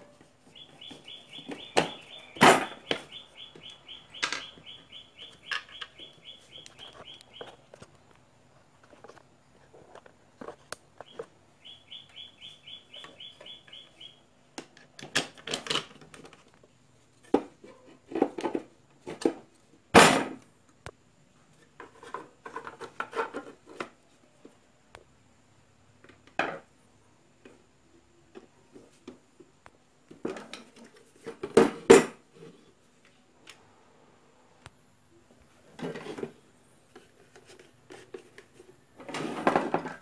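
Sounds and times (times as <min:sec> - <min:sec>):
quick evenly spaced chirps: 0:00.5 - 0:07.7, 0:11.0 - 0:14.3
plastic parts clicking and rattling: 0:14.6 - 0:16.6.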